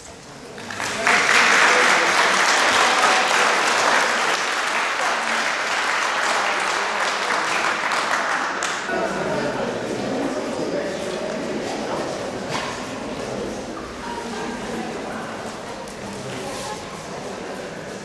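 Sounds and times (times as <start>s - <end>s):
audience clapping: 0.5s - 8.9s.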